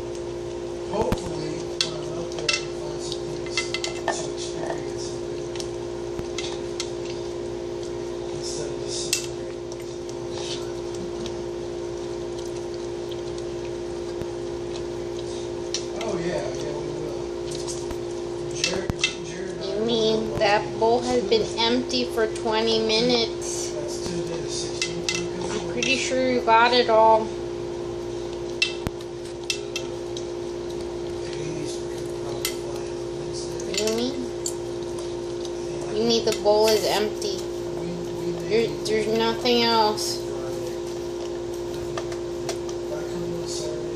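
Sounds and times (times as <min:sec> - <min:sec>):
water fountain pump hum: 0:00.0 - 0:43.9.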